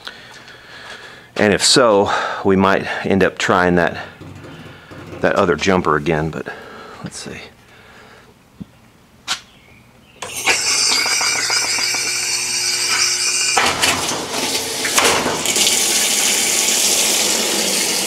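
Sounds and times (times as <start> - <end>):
water rushing into washer tub: 10.2 - 18.0.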